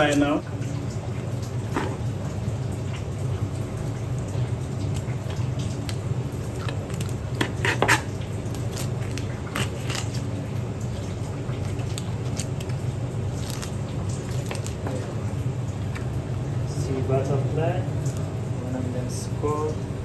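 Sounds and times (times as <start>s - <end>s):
steady low hum: 0.0s - 20.0s
knife cutting and scraping fish: 6.5s - 10.4s, 11.6s - 15.0s.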